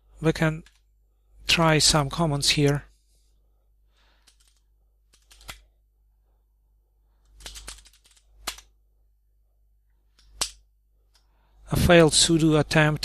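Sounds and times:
computer keyboard typing: 0:04.2 - 0:05.6, 0:07.3 - 0:08.7.

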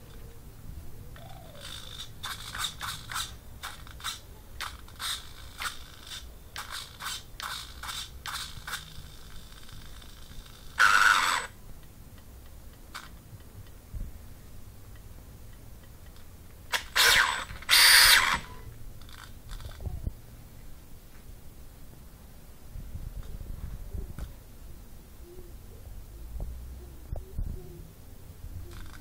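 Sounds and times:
loud rasping burst: 0:01.6 - 0:11.6, 0:16.7 - 0:19.7.

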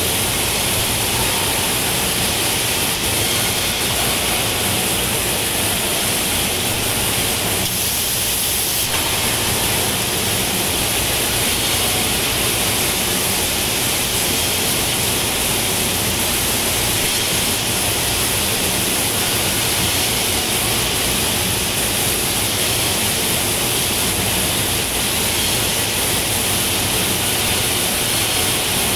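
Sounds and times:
mill machinery running: 0:00.0 - 0:28.9.

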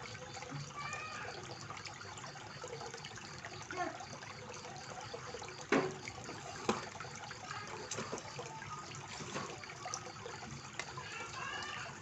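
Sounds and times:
fountain water trickling: 0:00.0 - 0:12.0.

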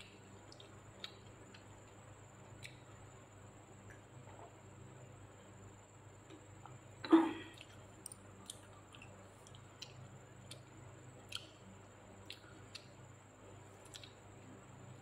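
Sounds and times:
low steady hum: 0:00.0 - 0:15.0
wet mouth clicks and lip smacks: 0:12.2 - 0:12.9, 0:13.8 - 0:14.2.

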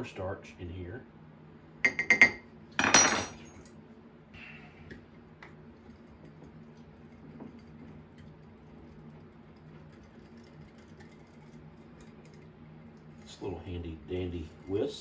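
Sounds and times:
spoon tapping glass cup: 0:01.9 - 0:02.4.

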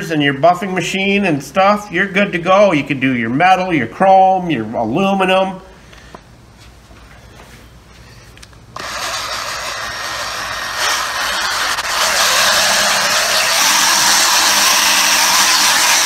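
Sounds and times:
polishing machine running: 0:08.8 - 0:16.0.

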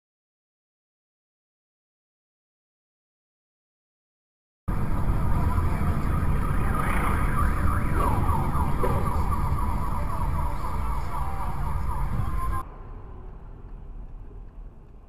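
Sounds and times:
siren-like gliding tone: 0:04.7 - 0:13.4
vehicle road and engine rumble: 0:04.7 - 0:15.0.

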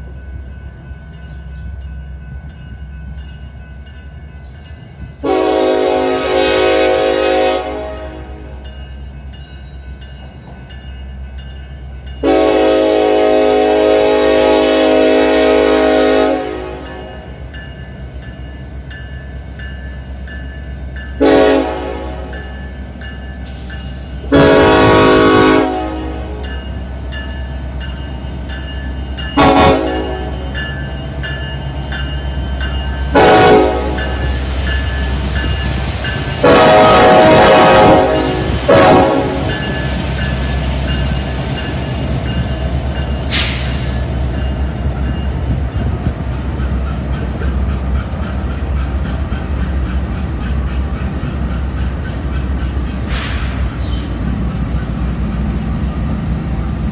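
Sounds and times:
low rumble of train: 0:00.0 - 0:56.9
locomotive air horn blasts: 0:05.2 - 0:08.6, 0:12.2 - 0:17.2, 0:21.2 - 0:22.4, 0:24.2 - 0:26.4, 0:29.4 - 0:30.5, 0:33.1 - 0:34.2, 0:36.4 - 0:39.6.

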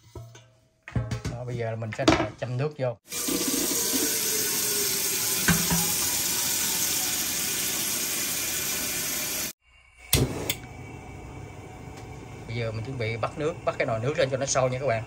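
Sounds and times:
faucet water filling metal pot: 0:03.1 - 0:09.6.

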